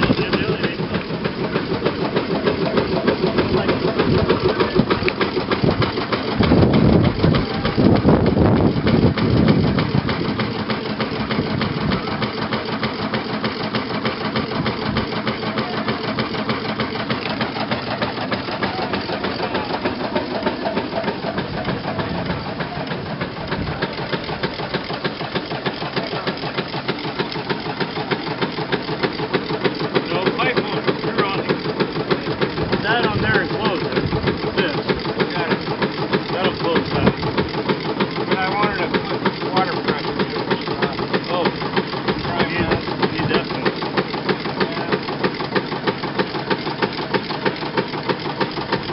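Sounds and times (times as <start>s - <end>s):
steam engine running: 0.0s - 48.9s.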